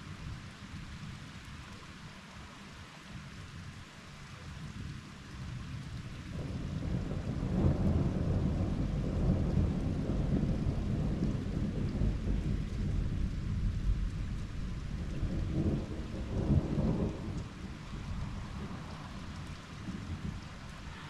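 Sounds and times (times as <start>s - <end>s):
steady rainfall: 0.0s - 21.0s
thunder rumbling: 6.3s - 21.0s.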